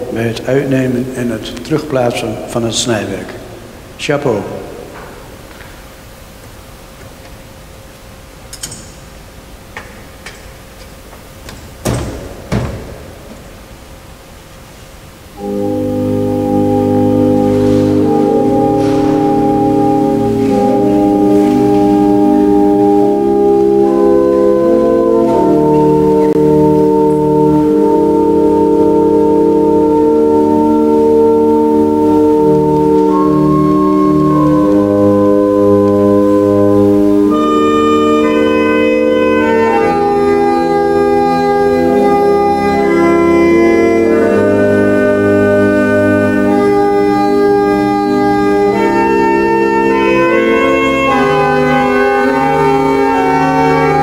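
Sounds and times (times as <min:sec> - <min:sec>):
pipe organ playing chords: 0:00.0 - 0:54.0
wooden knocks: 0:11.4 - 0:13.5.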